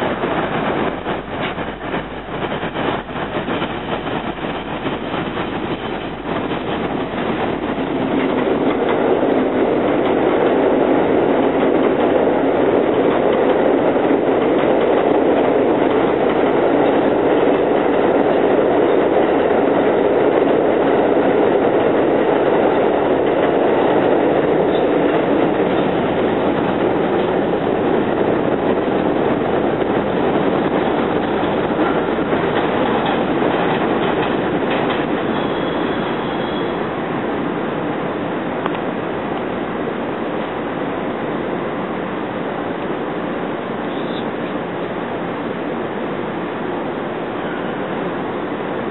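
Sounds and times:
steel wheels on rail: 0.0s - 37.3s.

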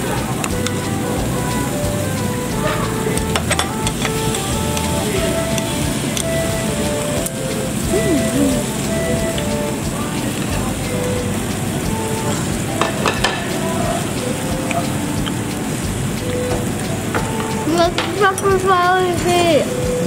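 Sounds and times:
meat sizzling on grill: 0.1s - 20.0s
person's voice: 7.8s - 15.2s, 17.6s - 20.0s.

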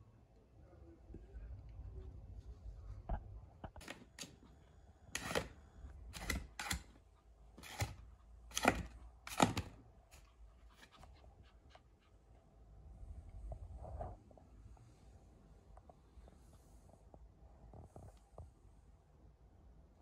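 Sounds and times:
claws scraping cardboard tube: 7.6s - 9.6s.

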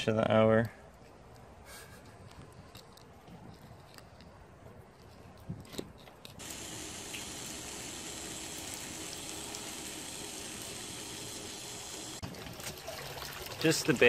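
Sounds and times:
water running from a hose: 6.4s - 14.0s.

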